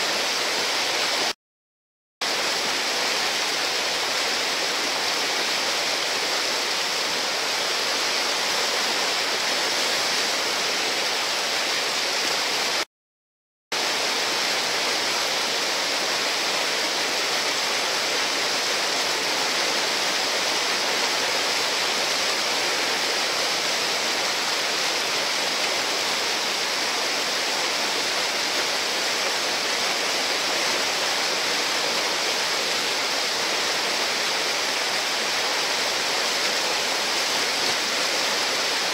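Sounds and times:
whitewater rushing: 0.0s - 1.4s, 2.2s - 12.9s, 13.8s - 38.9s.

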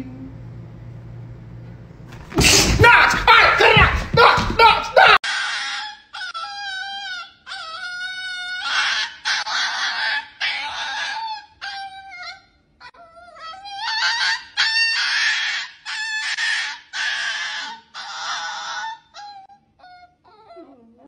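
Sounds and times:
dog screaming high-pitched cries: 2.5s - 20.5s.

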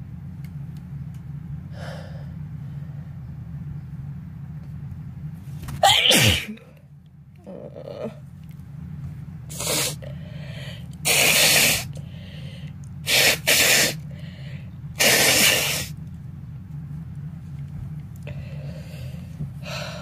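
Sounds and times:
person sneezing and blowing nose: 5.8s - 6.5s, 9.5s - 10.0s, 11.0s - 11.9s, 13.0s - 14.0s, 15.0s - 16.0s.

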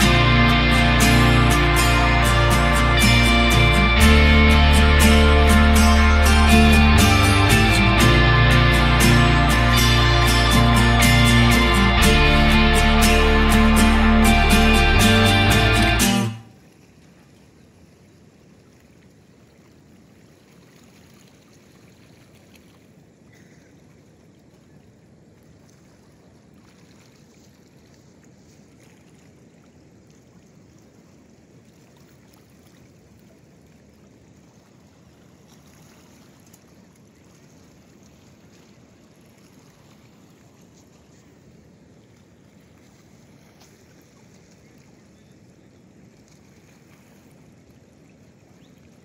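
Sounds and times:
light wind: 15.6s - 49.0s
water lapping against rocks: 16.5s - 49.0s.

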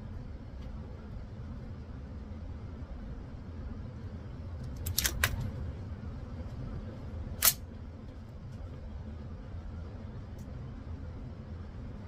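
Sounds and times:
low background rumble: 0.0s - 12.0s
rifle action clicking: 7.4s - 7.6s.

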